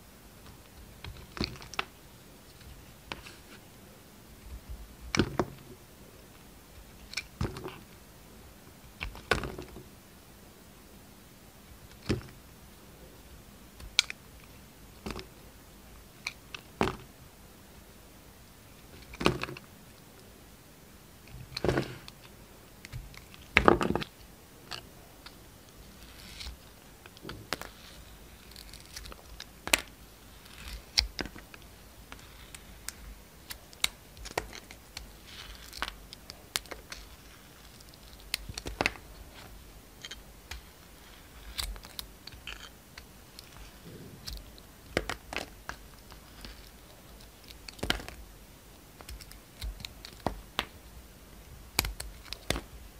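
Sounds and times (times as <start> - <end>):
knife scraping soap: 40.0 - 42.8.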